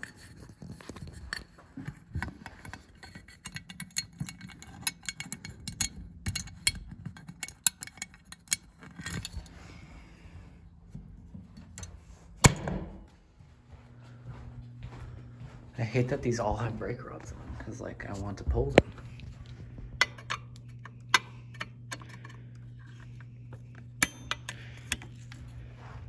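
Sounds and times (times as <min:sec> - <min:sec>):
clicks taps and light scraping: 0:17.2 - 0:25.6.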